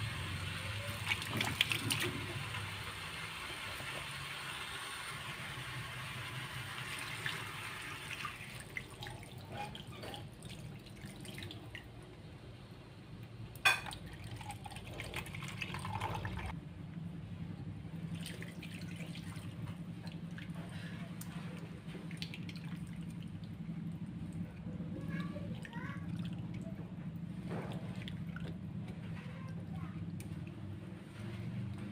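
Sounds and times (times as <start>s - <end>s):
low steady hum: 0.0s - 31.9s
liquid splashing and dripping: 0.8s - 2.6s, 18.1s - 24.5s.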